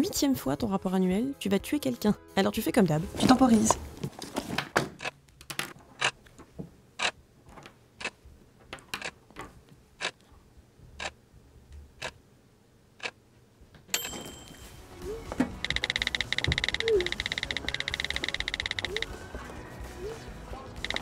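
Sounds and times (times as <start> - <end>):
clock ticking: 15.6 - 19.2, 20.8 - 21.0.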